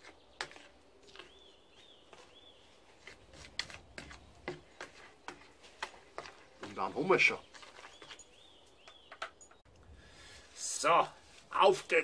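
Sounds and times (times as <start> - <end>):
bird calls: 0.0 - 3.2, 6.6 - 9.7.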